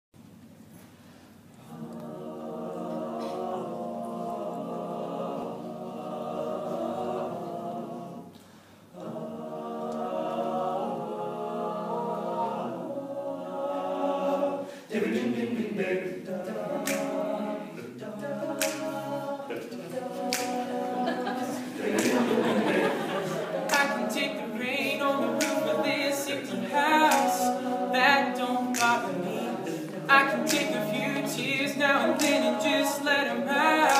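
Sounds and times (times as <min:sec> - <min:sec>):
male group singing in harmony: 0:01.6 - 0:08.4, 0:09.0 - 0:33.9
sharp vocal clicks: 0:20.3 - 0:20.6, 0:25.4 - 0:25.7.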